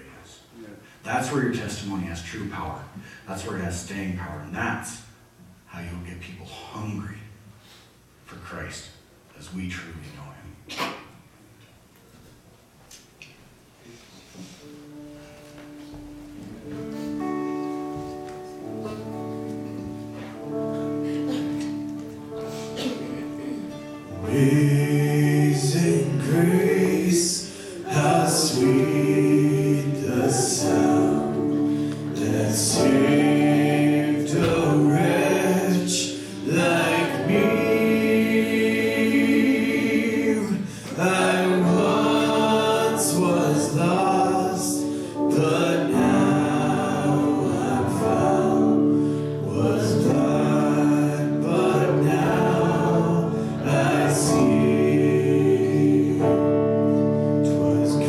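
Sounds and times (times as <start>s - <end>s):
worship band playing: 13.9s - 58.0s
woman singing lead: 24.3s - 33.0s.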